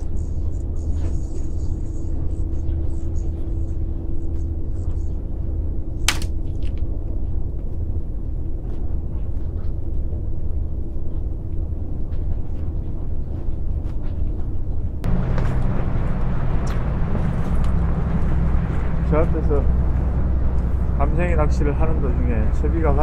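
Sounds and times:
wind rumbling on microphone: 0.0s - 23.0s
sharp click: 6.1s - 6.8s.

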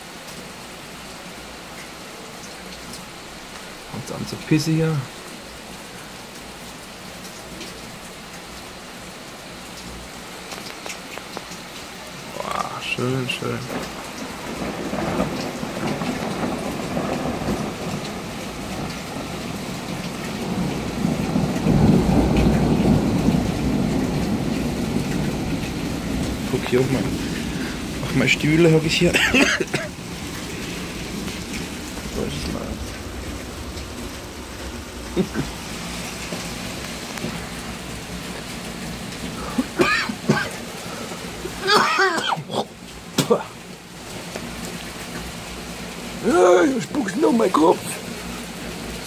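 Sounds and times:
rain downpour: 0.0s - 49.0s
rolling thunder rumble: 12.8s - 40.7s.

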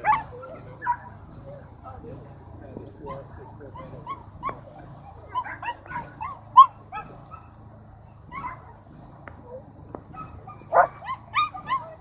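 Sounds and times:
dog yelping and whining: 0.0s - 1.1s, 3.7s - 7.4s, 8.0s - 8.8s, 10.2s - 12.0s.

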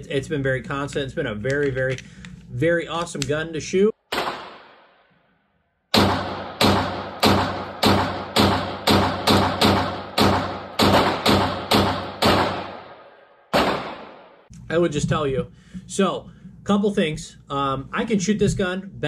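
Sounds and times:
pistol shots ringing indoors: 4.1s - 5.1s, 5.9s - 14.5s.

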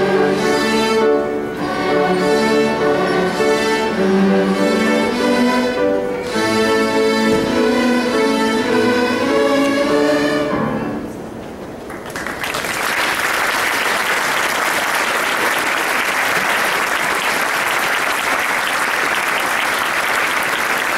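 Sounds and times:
string orchestra chord: 0.0s - 11.2s
audience applause: 11.9s - 20.9s.

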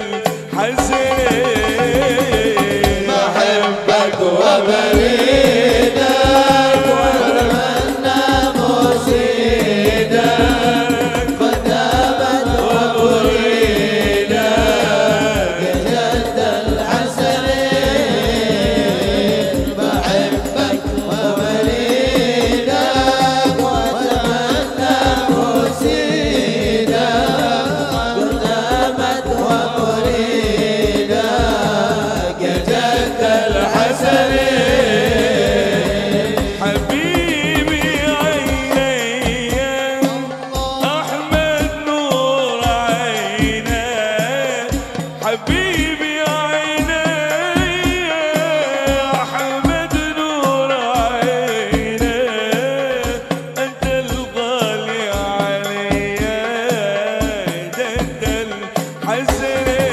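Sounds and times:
frame drums and bass drums: 0.0s - 59.9s
men singing into microphones: 0.0s - 59.9s.

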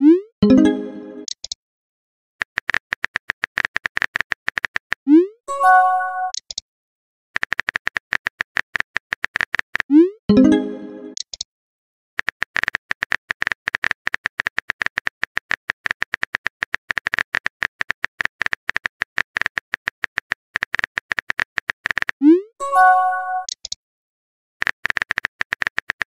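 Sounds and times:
message chime: 0.4s - 1.3s, 5.5s - 6.3s, 10.3s - 11.2s, 22.6s - 23.5s
phone keyboard typing clicks: 2.4s - 5.0s, 7.4s - 9.9s, 12.2s - 22.2s, 23.4s - 23.8s, 24.6s - 26.0s.

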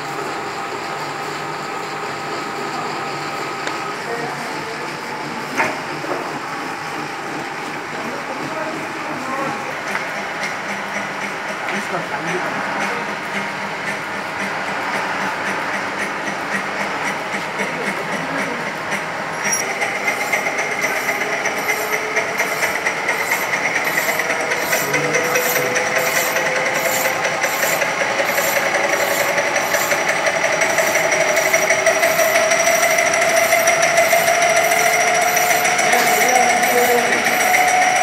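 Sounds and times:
file scraping spinning metal: 0.0s - 38.0s
lathe whine: 0.0s - 38.0s.

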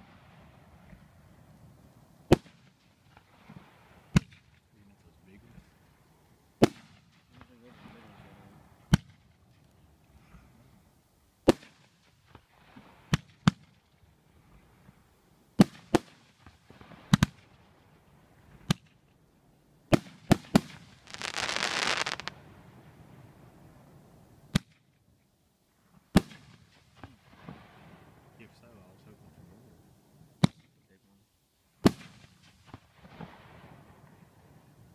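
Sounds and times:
fireworks bangs: 19.9s - 22.4s
firework hiss: 20.3s - 22.4s.

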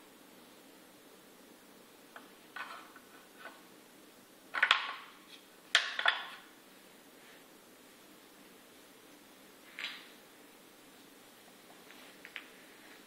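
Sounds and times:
wooden pieces knocking on wood: 4.6s - 5.1s.

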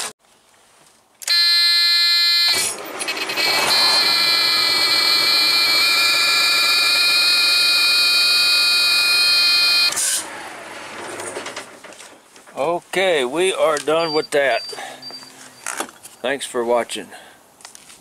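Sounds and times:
dashboard warning buzzer: 1.3s - 10.0s
diesel engine cranking and idling: 2.5s - 12.3s.

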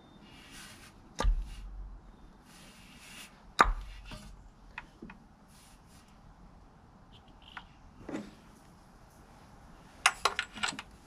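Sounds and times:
sharp knocks with dull thud: 1.2s - 1.8s.

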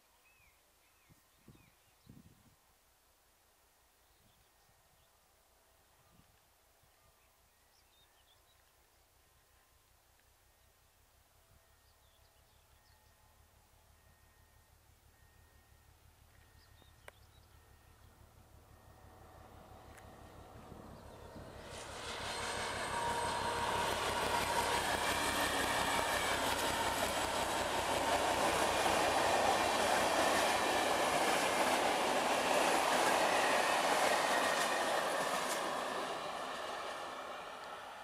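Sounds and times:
diesel locomotive engine: 12.4s - 38.0s
train wheels on rails: 18.2s - 38.0s.

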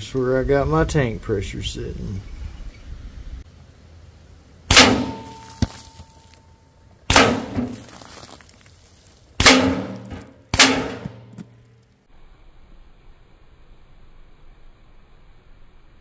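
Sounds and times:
air rifle shots: 4.7s - 5.5s, 7.1s - 7.8s, 9.4s - 11.3s.

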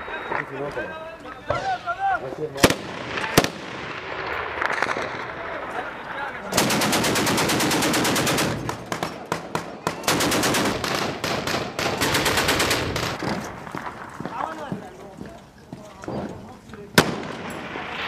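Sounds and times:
automatic gunfire: 6.5s - 13.2s
single gunshots: 17.0s - 18.0s.

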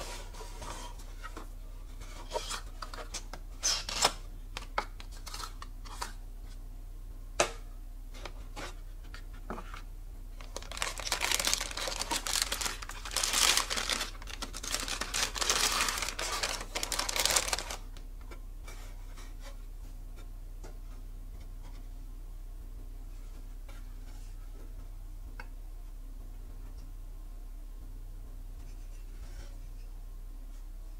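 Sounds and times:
plastic bag crinkling: 10.4s - 18.0s.

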